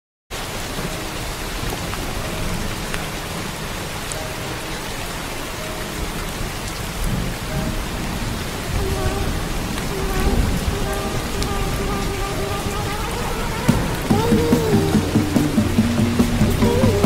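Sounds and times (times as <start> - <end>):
heavy rain on ground: 0.3 - 17.0.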